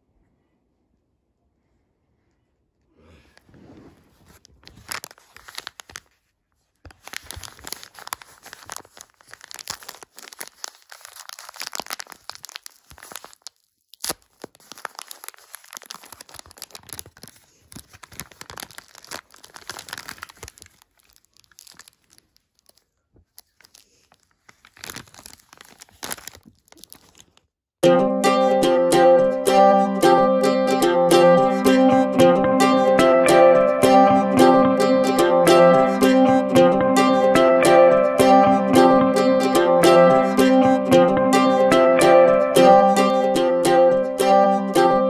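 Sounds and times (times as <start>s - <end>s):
paper tearing and crinkling: 3.4s - 27.5s.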